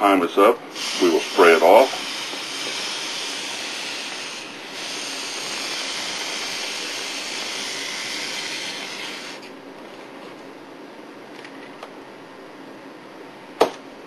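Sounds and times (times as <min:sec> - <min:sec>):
spray bottle hissing: 0:00.7 - 0:09.5.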